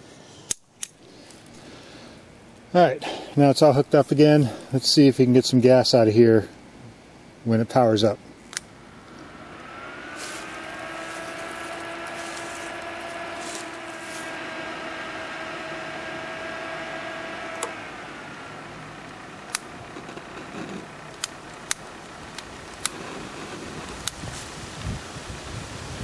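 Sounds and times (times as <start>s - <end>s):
sharp clicks: 0.5s - 1.0s, 17.5s - 17.8s, 19.4s - 23.2s
fan motor humming: 0.9s - 26.0s.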